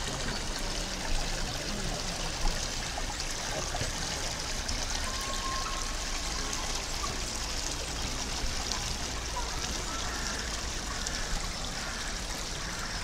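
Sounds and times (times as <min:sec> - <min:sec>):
stream water trickling: 0:00.0 - 0:13.0.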